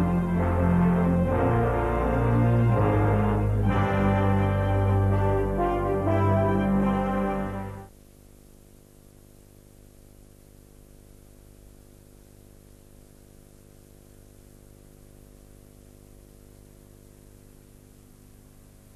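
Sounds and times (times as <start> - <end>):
low electrical hum: 0.0 - 18.9.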